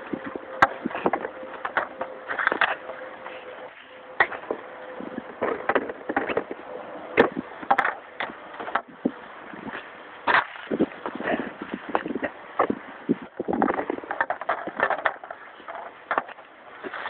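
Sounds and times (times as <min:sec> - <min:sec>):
hockey stick clacking pucks: 0:00.6 - 0:03.4, 0:05.4 - 0:06.6, 0:07.2 - 0:08.9, 0:10.2 - 0:12.8, 0:13.5 - 0:17.0
pucks raked from plastic bucket: 0:00.6 - 0:03.4, 0:13.4 - 0:17.0.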